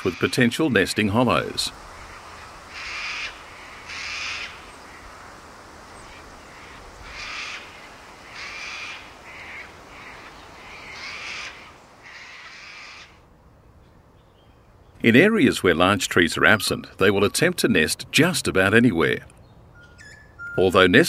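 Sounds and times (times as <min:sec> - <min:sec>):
cockatoos screeching: 0:02.0 - 0:05.1, 0:06.0 - 0:13.2.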